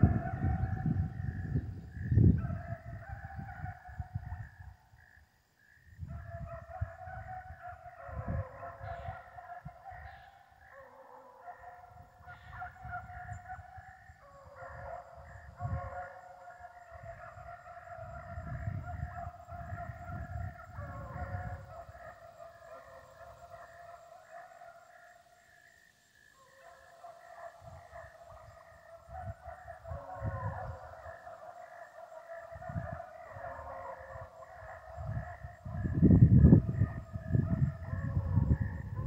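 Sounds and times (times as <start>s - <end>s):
dogs baying: 6.1s - 25.2s, 26.4s - 36.0s.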